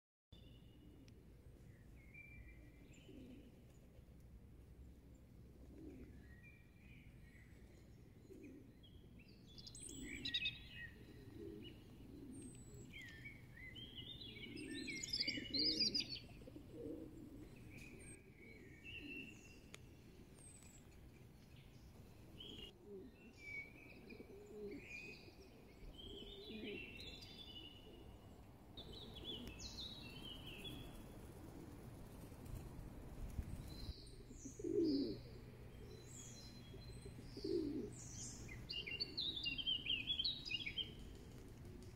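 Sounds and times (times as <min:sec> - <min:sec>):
pigeons cooing: 0:02.8 - 0:03.6, 0:05.4 - 0:06.3, 0:08.0 - 0:08.9, 0:09.8 - 0:20.9, 0:22.4 - 0:28.2, 0:28.8 - 0:32.7, 0:34.1 - 0:41.9
songbirds chirping and singing: 0:06.0 - 0:31.2, 0:33.4 - 0:41.2.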